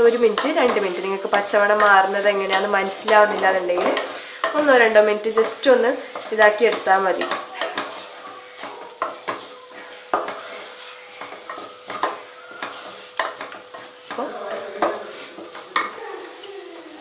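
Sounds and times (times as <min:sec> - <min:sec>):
spatula scraping a pot: 0:00.0 - 0:16.9
oil sizzling: 0:00.0 - 0:17.0
spatula knocking against pot: 0:08.6 - 0:10.4, 0:11.2 - 0:14.2.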